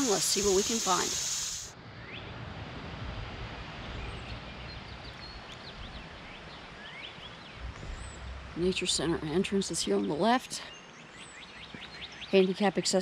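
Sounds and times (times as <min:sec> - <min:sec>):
birds chirping: 0:00.0 - 0:01.7, 0:04.0 - 0:13.0
high insect-like hiss: 0:00.0 - 0:01.7.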